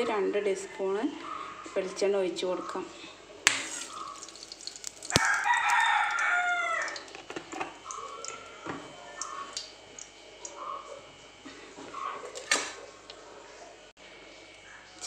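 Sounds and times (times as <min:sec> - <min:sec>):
rooster crowing: 0:05.1 - 0:07.2.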